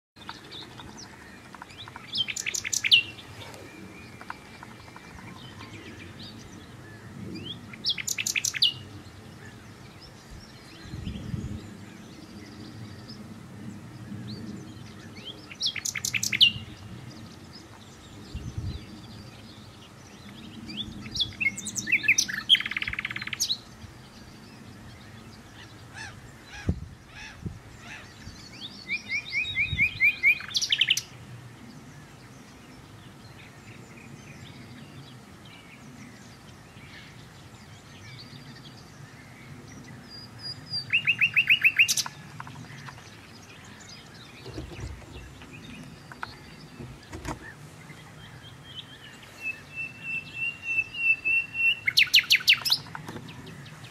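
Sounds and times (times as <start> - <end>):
nightingale singing: 0.2 - 6.8, 7.4 - 11.6, 14.8 - 16.8, 17.9 - 24.9, 27.4 - 31.2, 39.8 - 53.9
bird trill: 40.8 - 47.6, 48.3 - 53.9.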